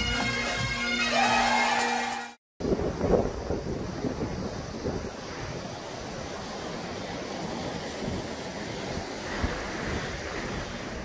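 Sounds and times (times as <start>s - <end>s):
wind buffeting microphone: 2.6s - 11.0s
small waves washing in: 3.3s - 11.0s.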